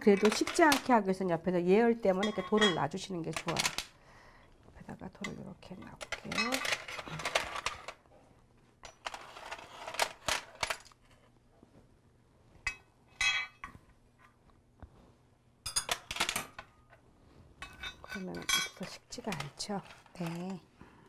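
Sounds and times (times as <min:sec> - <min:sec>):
metal tongs clinking on tray: 0:02.2 - 0:03.6, 0:17.6 - 0:19.4
stones and shells clinking on plate: 0:06.0 - 0:07.9.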